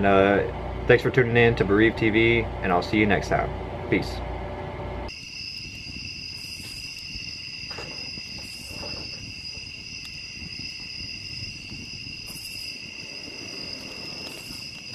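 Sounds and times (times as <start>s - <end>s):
campfire crackling: 5.1s - 14.9s
crickets trilling: 5.1s - 14.9s.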